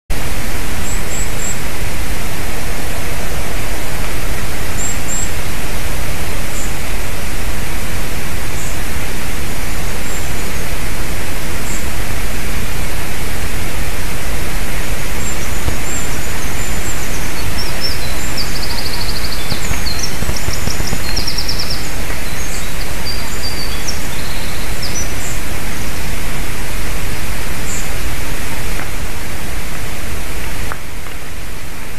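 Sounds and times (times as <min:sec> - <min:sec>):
loud steady hiss: 0:00.1 - 0:31.9
small bird chirping: 0:15.2 - 0:25.4.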